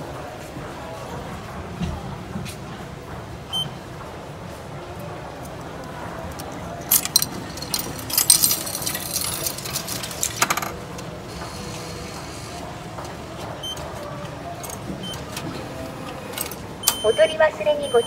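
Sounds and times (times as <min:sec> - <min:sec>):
coins clinking into machine: 0:06.8 - 0:10.8
machine short beeps: 0:16.8 - 0:18.0.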